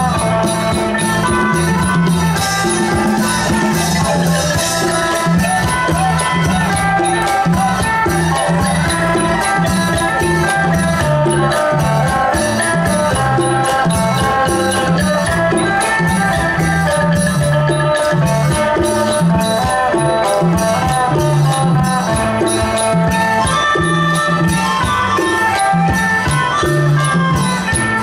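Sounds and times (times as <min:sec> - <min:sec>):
folk band playing instrumental: 0:00.0 - 0:28.0
percussion steady beat: 0:00.0 - 0:28.0.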